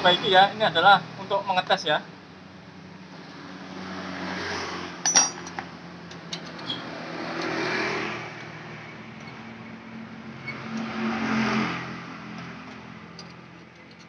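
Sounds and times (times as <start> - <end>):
sharp metallic clink: 5.0 - 5.6.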